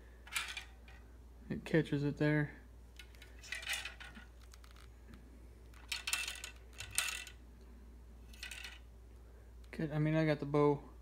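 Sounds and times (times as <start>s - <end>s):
arrow rattling against metal rest: 3.0s - 4.8s, 5.7s - 7.4s.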